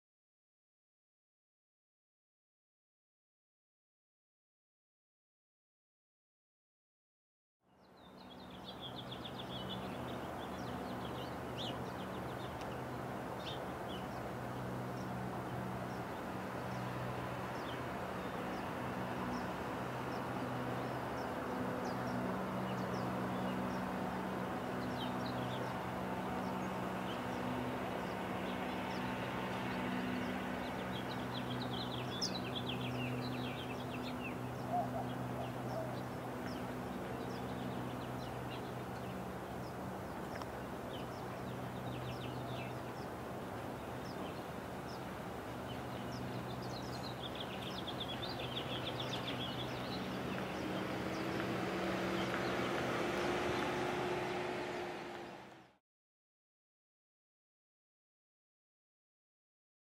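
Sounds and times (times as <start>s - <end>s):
small birds chirping: 7.7s - 55.8s
steady low hum: 8.0s - 55.7s.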